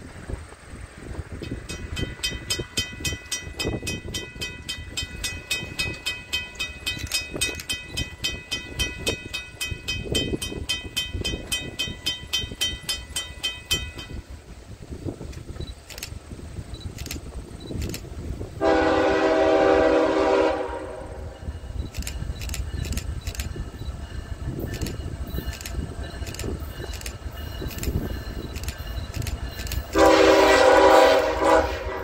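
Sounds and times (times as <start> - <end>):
wind rumbling on microphone: 0.0 - 32.0
crossing bell ringing: 1.4 - 14.4, 21.2 - 30.4.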